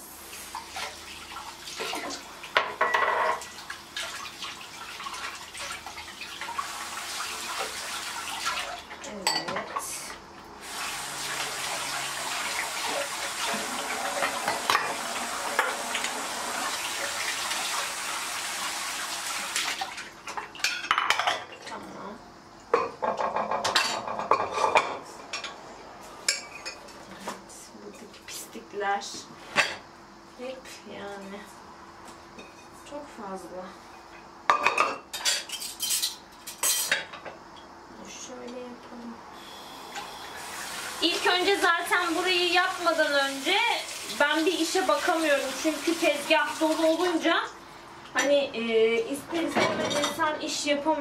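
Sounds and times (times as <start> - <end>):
dishes clinking: 2.6 - 3.5, 9.2 - 9.8, 20.3 - 21.5, 34.5 - 37.3, 49.5 - 50.2
tap running: 10.7 - 19.8.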